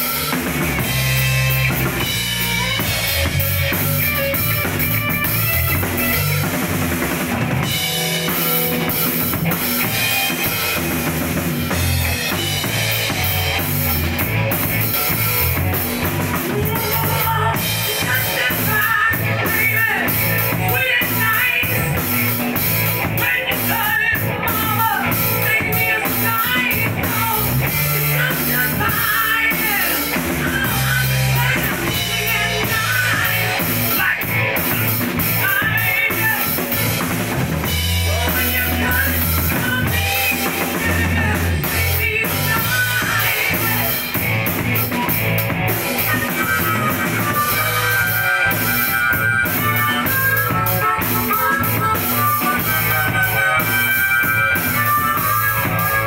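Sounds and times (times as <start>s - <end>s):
harmonica: 0.0s - 56.0s
live rock band playing: 0.0s - 56.0s
man singing into microphone: 16.5s - 22.0s, 23.2s - 34.4s, 38.1s - 44.1s.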